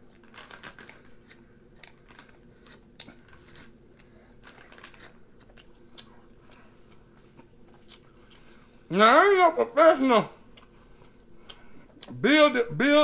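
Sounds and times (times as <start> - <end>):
chewing with mouth clicks: 0.1 - 8.9.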